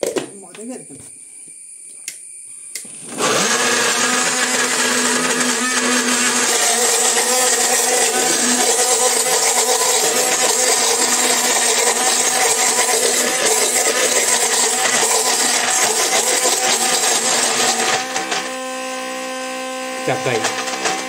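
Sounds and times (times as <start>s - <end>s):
mixer grinder running: 2.9s - 21.0s.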